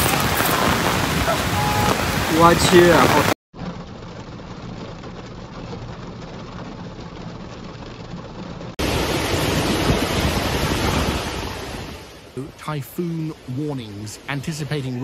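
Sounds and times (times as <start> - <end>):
rain on car windshield: 0.0 - 11.7
strong wind and driving rain: 0.0 - 15.0.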